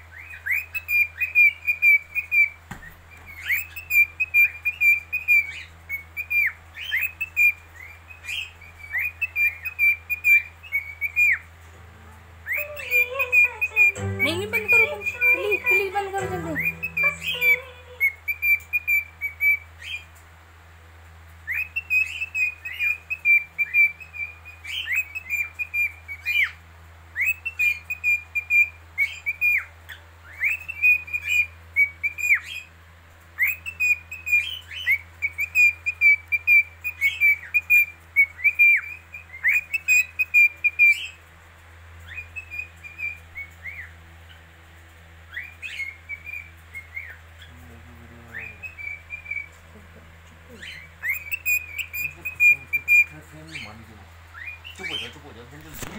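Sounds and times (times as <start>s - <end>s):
faint low hum: 0.0s - 55.9s
cockatiel whistling: 12.4s - 20.0s, 50.6s - 53.7s.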